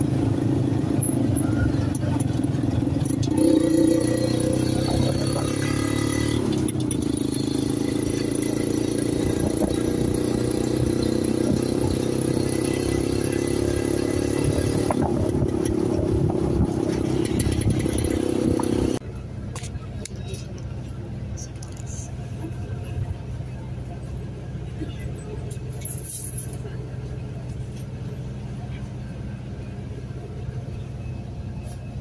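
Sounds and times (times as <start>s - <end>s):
motorcycle engine running: 0.0s - 24.8s
road and traffic noise: 0.0s - 32.0s.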